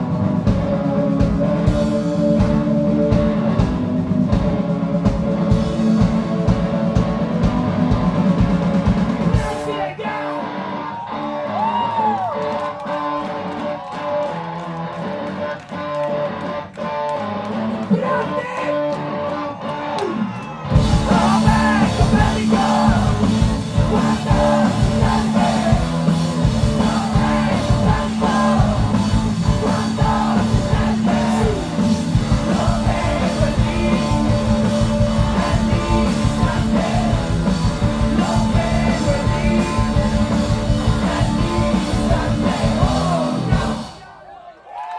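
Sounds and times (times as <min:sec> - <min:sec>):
rock band playing live: 0:00.0 - 0:44.0
loud singing: 0:09.3 - 0:11.7, 0:20.8 - 0:44.8.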